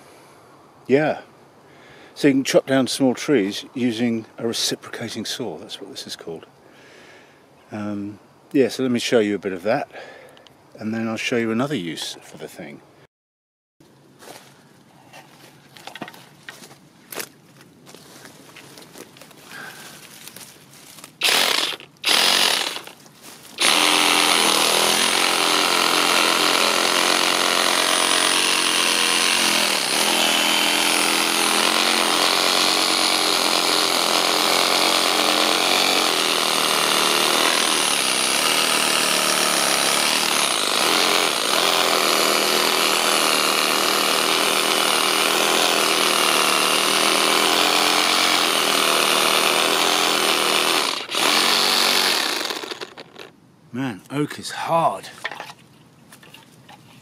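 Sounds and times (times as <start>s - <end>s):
reciprocating saw cutting wood: 21.2s - 23.0s, 23.6s - 53.3s.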